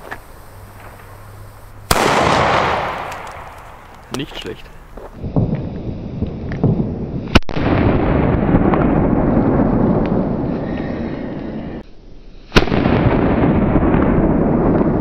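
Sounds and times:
firecracker bangs: 0.8 - 10.3, 12.5 - 15.0
rumble after bang: 5.0 - 11.8.

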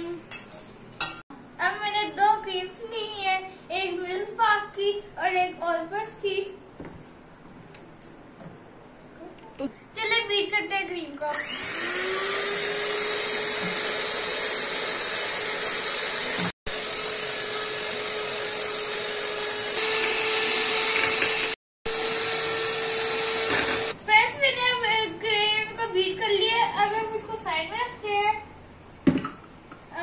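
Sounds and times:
boy's voice: 1.6 - 6.6, 9.2 - 11.4, 24.1 - 28.5
electric hand mixer whipping cream: 11.3 - 24.0.

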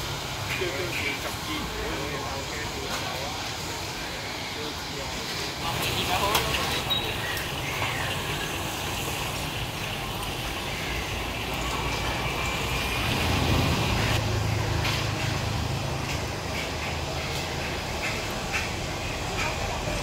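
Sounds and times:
road traffic: 0.0 - 20.0
vehicle engine hum: 5.6 - 20.0.

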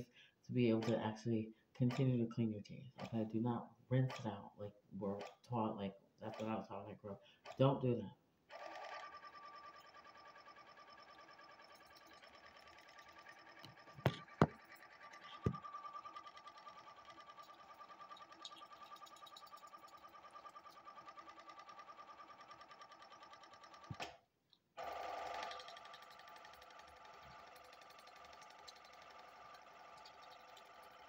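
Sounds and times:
electric toothbrush buzzing: 8.6 - 22.2, 24.8 - 31.0
sharp knocks: 14.0 - 14.7.

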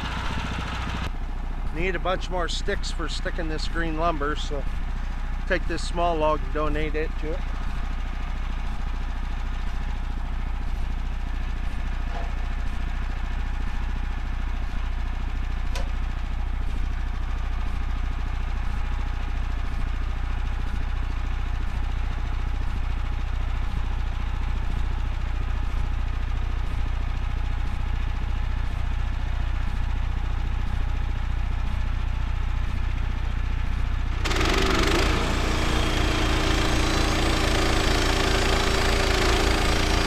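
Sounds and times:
small gas engine running: 0.0 - 1.1, 33.7 - 40.0.

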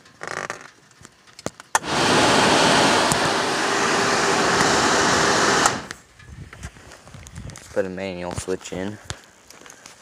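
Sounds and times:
electric cooling fan rushing: 1.8 - 6.0.

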